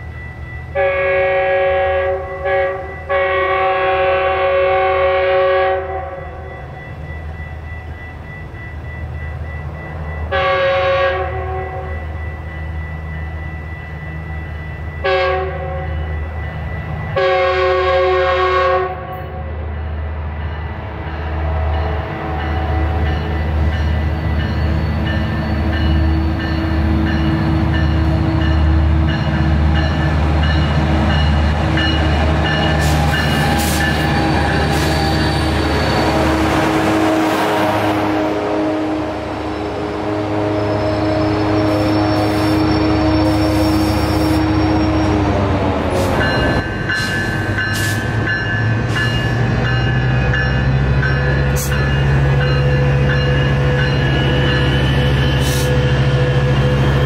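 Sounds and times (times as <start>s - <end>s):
train rumble and wheel clatter: 0.0s - 57.0s
train air horn blasts: 0.7s - 6.4s, 10.3s - 11.9s, 15.0s - 16.0s, 17.2s - 19.6s, 32.7s - 45.2s, 54.1s - 57.0s.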